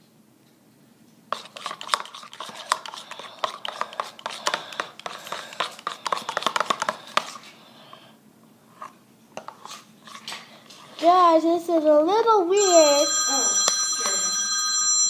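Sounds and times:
utensil stirring in a plastic cup: 1.3 - 7.6, 8.8 - 11.0.

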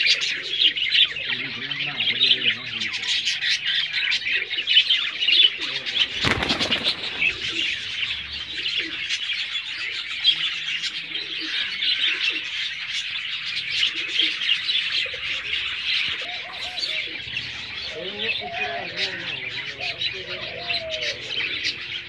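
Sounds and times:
pigeons cooing: 0.0 - 22.0
small birds chirping: 0.0 - 22.0
rustling burst: 6.1 - 7.7.

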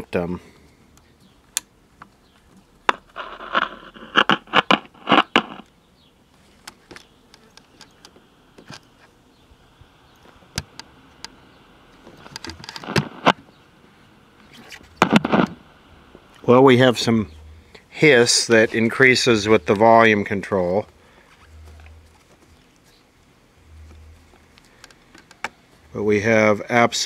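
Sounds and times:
radio speaker hiss: 0.0 - 0.8, 2.8 - 5.8, 6.6 - 27.0
radio control clicks: 2.9 - 5.8, 10.1 - 13.5, 14.9 - 16.4.

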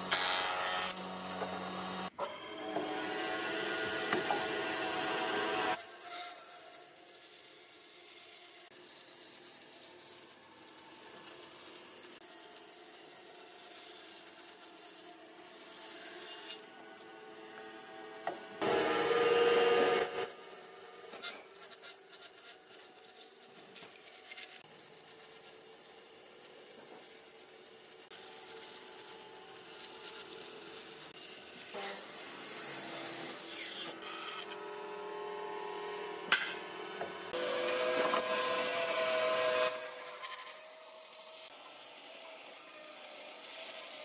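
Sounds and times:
band saw cutting wood: 0.0 - 44.0.

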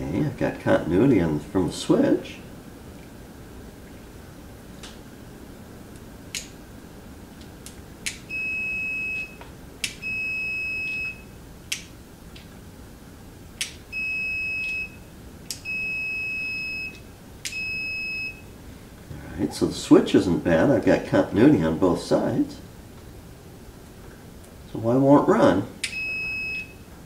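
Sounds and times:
multimeter continuity beeps: 8.3 - 9.4, 10.0 - 11.4, 13.9 - 18.5, 25.8 - 26.9.

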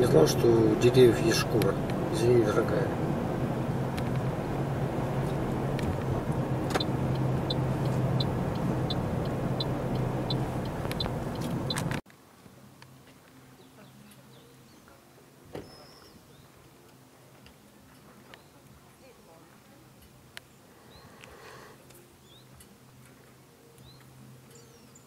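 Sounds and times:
car engine running: 0.0 - 12.0
faint outdoor ambience: 0.0 - 25.0
tyres on road: 0.0 - 25.0
turn indicator ticking: 5.2 - 12.0.

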